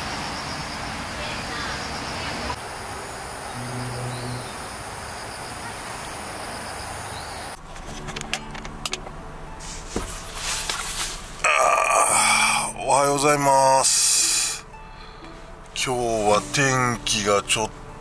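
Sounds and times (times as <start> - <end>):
insects chirping: 0.0 - 11.4
low hum: 2.8 - 5.4
rustling: 9.6 - 11.5.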